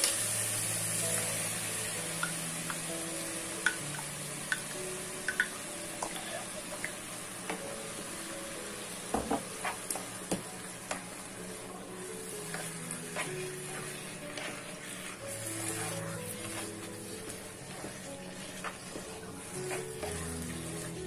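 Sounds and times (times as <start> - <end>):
sauce sizzling in a pot: 0.0 - 21.0
spatula stirring and scraping: 9.5 - 10.2, 10.9 - 21.0.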